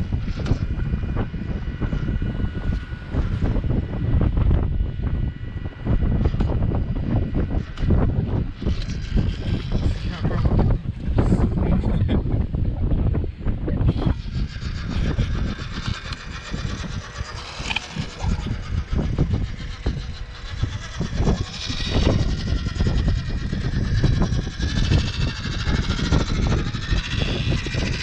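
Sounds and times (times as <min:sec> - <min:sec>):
loud low rumble: 0:00.0 - 0:28.0
toy truck motor whining: 0:06.1 - 0:11.6, 0:13.8 - 0:28.0.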